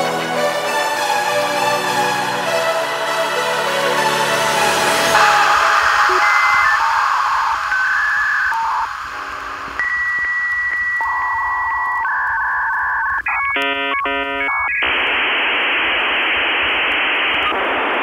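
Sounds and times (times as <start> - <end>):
electronic tones: 5.2 - 18.0
radio static hiss: 5.2 - 18.0
stacked beeps: 5.4 - 14.9.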